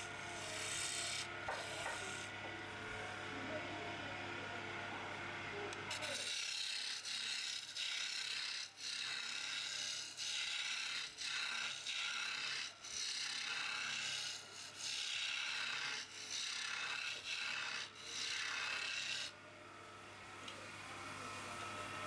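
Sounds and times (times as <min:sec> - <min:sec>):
chisel scraping wood on lathe: 0:00.0 - 0:02.3, 0:05.9 - 0:19.4.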